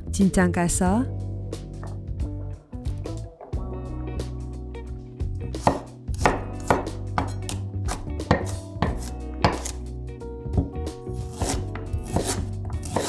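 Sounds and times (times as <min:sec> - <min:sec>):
knife chopping on wooden board: 0:05.5 - 0:09.8, 0:10.5 - 0:13.0.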